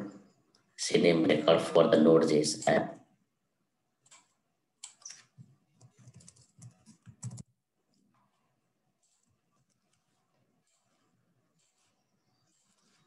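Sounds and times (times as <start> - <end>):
computer keyboard typing: 4.0 - 7.5.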